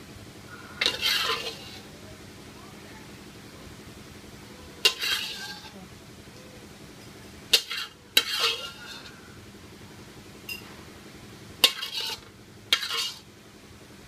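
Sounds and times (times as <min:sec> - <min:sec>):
metal spatula clanking on wok: 0:00.8 - 0:01.8, 0:04.8 - 0:05.7, 0:07.0 - 0:09.1, 0:11.6 - 0:13.2.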